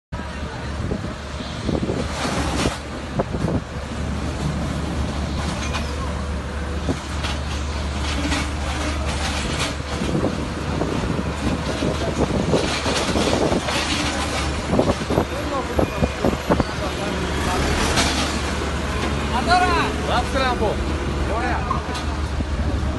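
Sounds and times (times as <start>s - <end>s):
knocks and clatter: 11.4s - 15.3s, 17.4s - 19.2s
low engine drone: 16.5s - 22.9s.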